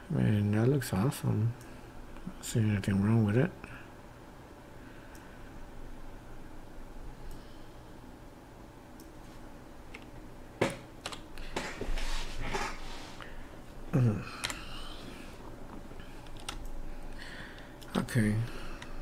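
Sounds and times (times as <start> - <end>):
computer keyboard and mouse clicks: 9.9 - 11.4, 14.4 - 14.7, 16.2 - 16.7
man's voice murmuring: 13.9 - 14.5.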